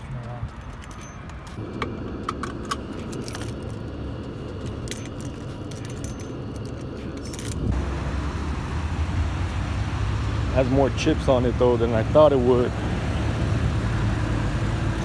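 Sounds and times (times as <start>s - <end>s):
car engine idling: 0.0s - 15.0s
keys jingling: 0.2s - 7.7s.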